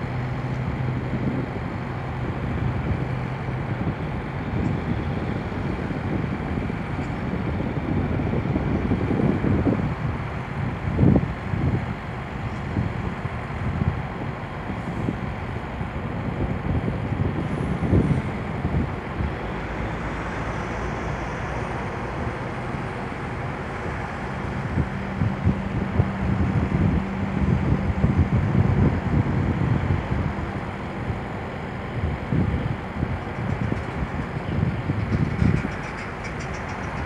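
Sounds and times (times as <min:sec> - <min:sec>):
distant traffic rumble: 0:00.0 - 0:37.0
wind buffeting microphone: 0:00.0 - 0:37.0.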